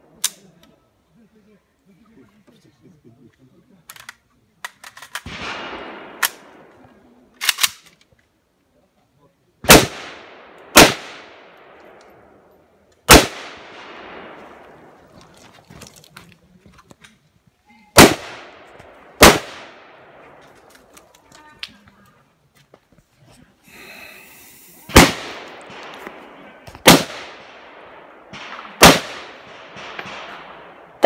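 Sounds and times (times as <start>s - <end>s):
rifle shots echoing: 5.0s - 7.8s, 9.6s - 15.1s, 18.0s - 20.9s, 24.9s - 31.0s.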